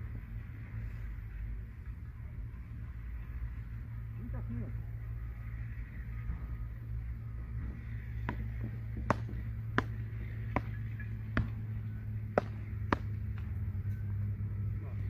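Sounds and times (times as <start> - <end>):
paddles hitting ball: 8.1 - 13.8.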